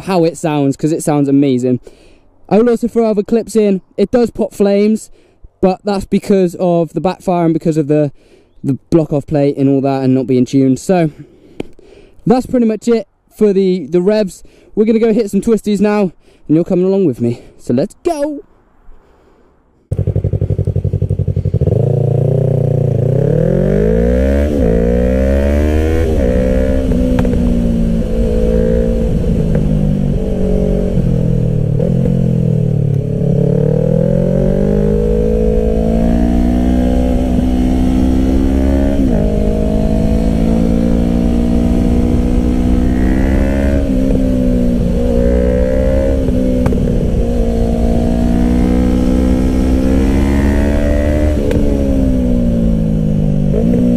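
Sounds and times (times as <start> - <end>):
motorcycle engine revving: 19.9 - 53.9.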